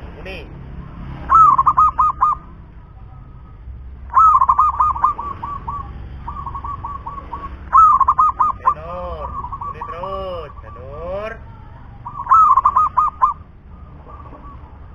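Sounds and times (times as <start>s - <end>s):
dove cooing: 1.3s - 3.5s, 4.1s - 11.1s, 12.0s - 14.9s.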